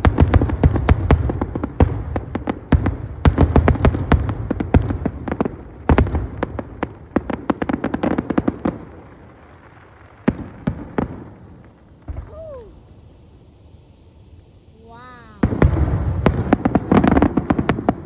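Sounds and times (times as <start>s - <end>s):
scattered firework bangs: 15.3s - 18.0s.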